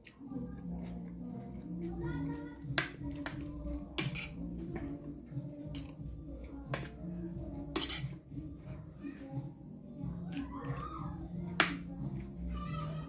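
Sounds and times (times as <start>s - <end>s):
fork clinking on a plate: 7.7s - 8.2s.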